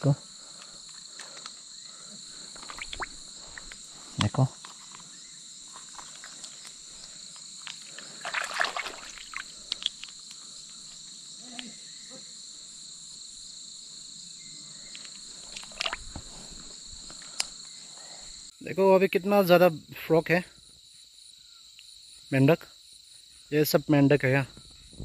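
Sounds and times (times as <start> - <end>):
crickets chirping: 0.0 - 25.0.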